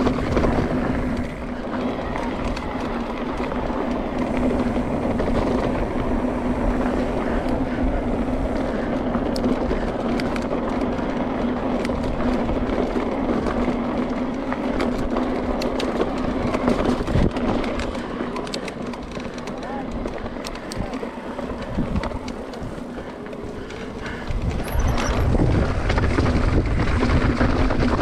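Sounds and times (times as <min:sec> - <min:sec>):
bike rattles and clicks: 0:00.0 - 0:28.0
bike tyres rolling on gravel: 0:00.0 - 0:28.0
wind noise: 0:00.0 - 0:28.0.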